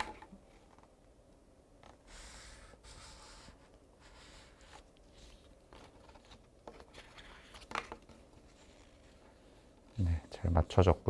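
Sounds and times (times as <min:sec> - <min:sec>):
paper rustling and scraping: 0:02.1 - 0:10.1.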